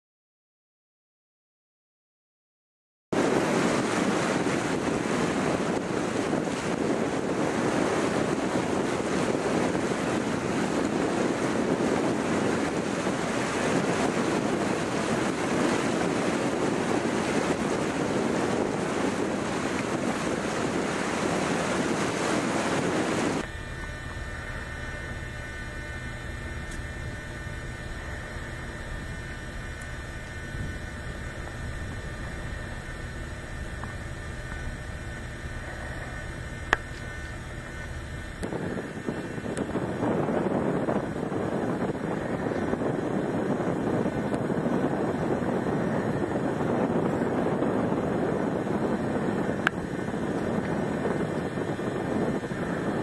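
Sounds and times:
wind rumble on microphone: 3.2s - 53.0s
floodwater rushing: 12.2s - 38.2s.

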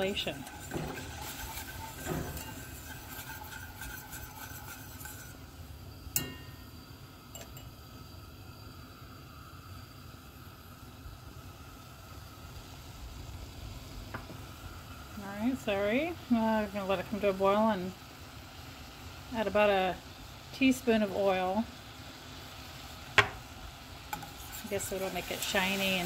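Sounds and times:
whisk scraping a metal pan: 0.0s - 5.5s, 24.1s - 26.0s
faint hiss of heating pan: 0.0s - 26.0s.

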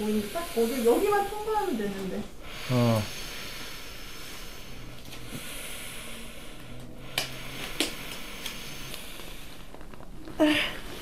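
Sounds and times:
woman breathing faintly: 2.3s - 11.0s.

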